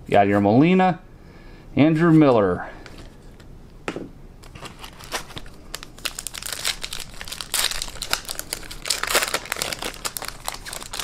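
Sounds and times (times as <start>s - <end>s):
foil wrapper crinkling: 4.4s - 11.0s.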